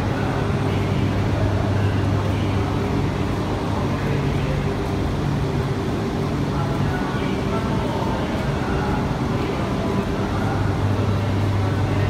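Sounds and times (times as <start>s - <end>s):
train low hum: 0.0s - 12.0s.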